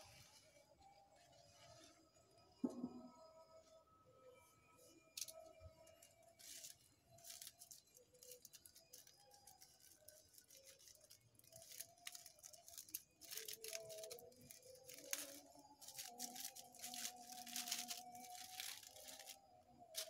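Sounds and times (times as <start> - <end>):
plastic bags crinkling: 6.4 - 20.0.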